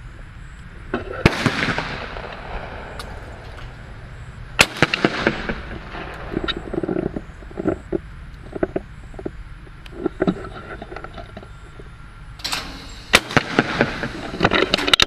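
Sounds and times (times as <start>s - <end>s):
shotgun shots echoing: 1.1s - 7.0s, 12.4s - 15.0s
mechanical clicks and knocks: 12.4s - 15.0s.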